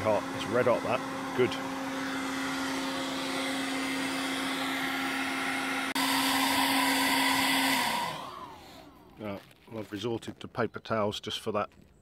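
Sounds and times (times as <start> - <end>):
hairdryer blowing air: 0.0 - 9.2.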